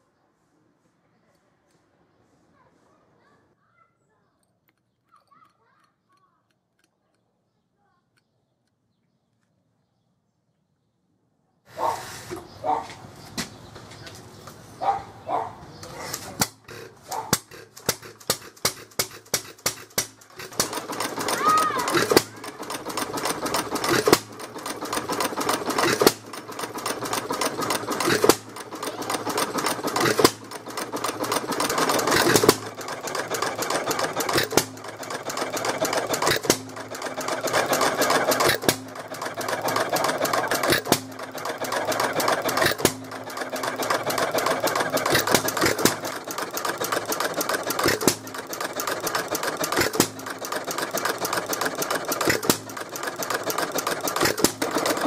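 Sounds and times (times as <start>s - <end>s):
fast mechanical clicking: 16.1s - 55.0s.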